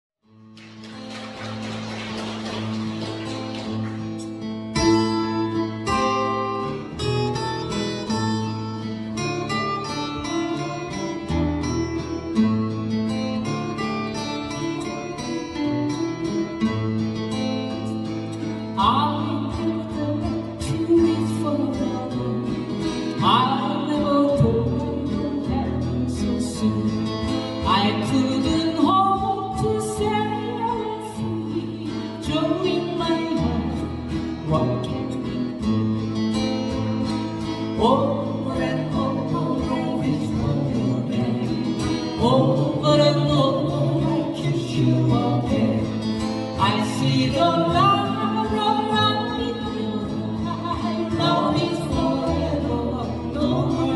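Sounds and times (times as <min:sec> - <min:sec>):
acoustic guitars strumming: 0:00.3 - 0:53.9
voices singing: 0:46.6 - 0:53.9.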